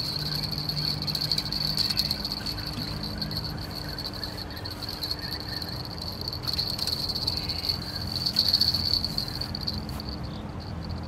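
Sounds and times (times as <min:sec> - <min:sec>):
insect stridulating: 0:00.0 - 0:11.0.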